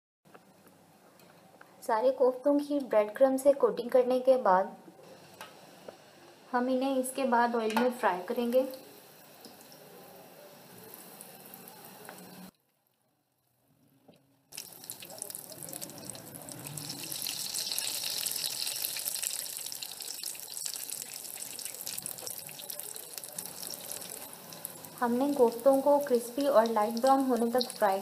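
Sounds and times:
food sizzling in hot oil: 6.9s - 12.5s, 14.5s - 28.0s.

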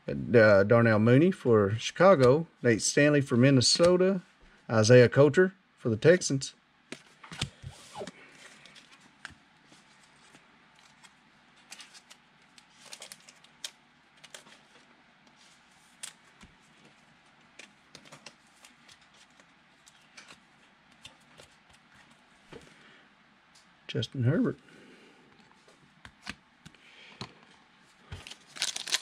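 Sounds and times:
cards clicking and rustling: 6.9s - 14.8s, 15.9s - 22.2s, 28.1s - 29.0s.

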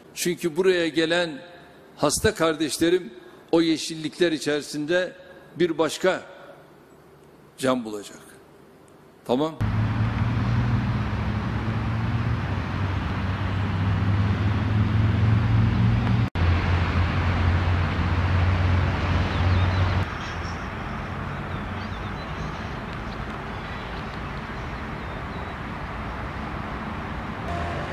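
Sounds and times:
low engine hum: 9.6s - 27.9s
road traffic noise: 9.6s - 27.9s.

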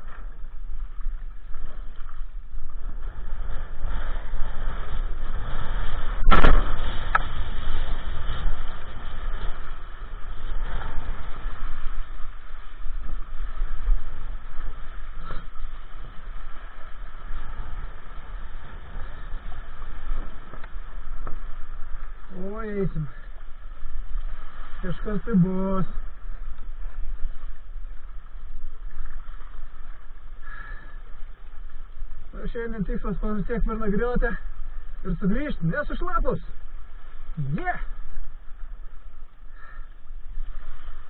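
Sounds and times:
water rushing under board: 0.0s - 41.0s
loud thump: 6.2s - 7.5s.

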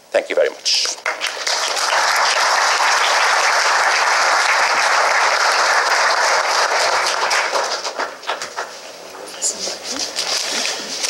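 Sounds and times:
audience applauding: 1.0s - 8.7s.

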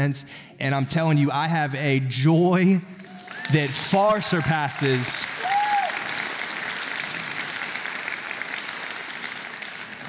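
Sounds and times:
congregation applauding: 3.0s - 10.0s.

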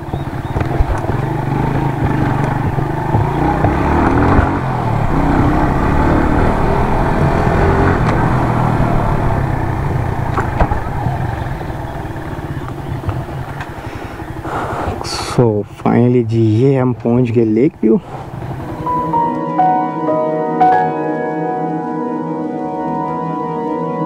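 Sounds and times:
motorcycle engine running: 0.0s - 16.6s, 17.4s - 19.4s.

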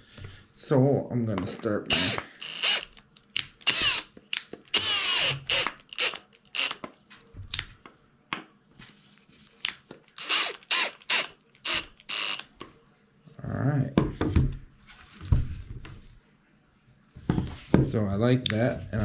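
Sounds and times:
cordless drill bursts into wood: 1.9s - 3.0s, 3.6s - 4.1s, 4.7s - 6.8s, 10.2s - 12.4s.

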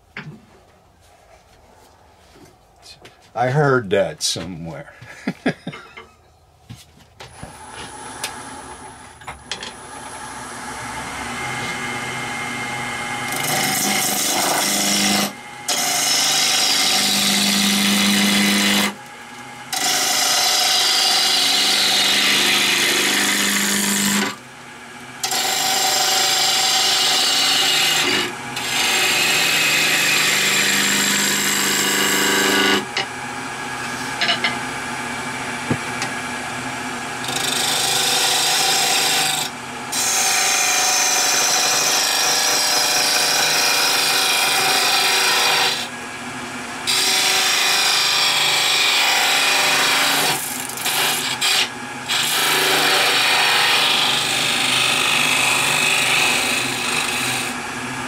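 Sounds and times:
turning tool cutting wood: 7.4s - 36.3s, 37.1s - 46.0s, 46.8s - 57.6s
wood lathe running: 9.7s - 24.5s, 25.2s - 34.6s, 37.2s - 46.0s, 46.8s - 57.6s.

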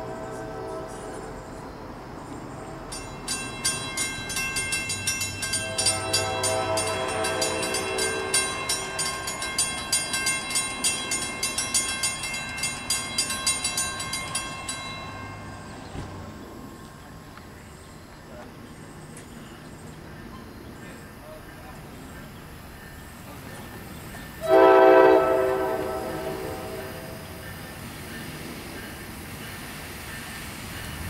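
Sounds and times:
distant train horn: 0.0s - 1.7s, 5.5s - 9.6s, 24.4s - 27.8s
crossing warning bells ringing: 0.0s - 31.0s.

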